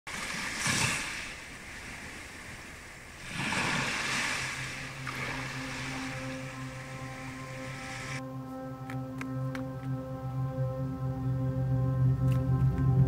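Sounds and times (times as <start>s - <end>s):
sea waves washing in: 0.1s - 8.2s.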